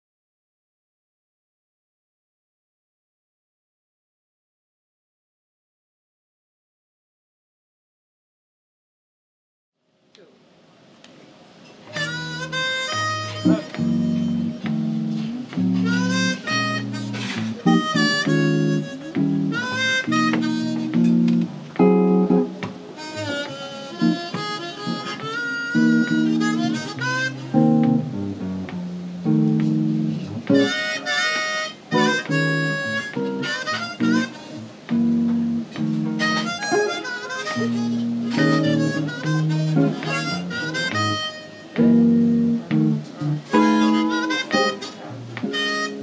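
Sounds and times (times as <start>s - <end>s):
plucked guitar: 11.7s - 46.0s
harmonica long notes: 11.9s - 28.3s, 29.2s - 46.0s.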